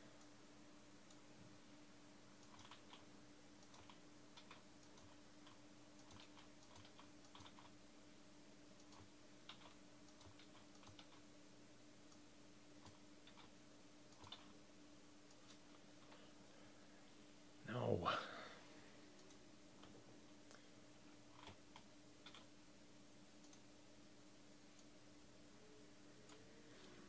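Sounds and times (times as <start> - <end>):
faint steady hum: 0.0 - 27.0
keyboard typing and clicking: 2.4 - 3.0, 3.6 - 7.7, 8.8 - 11.3, 12.8 - 14.6, 21.3 - 22.5, 23.4 - 23.7.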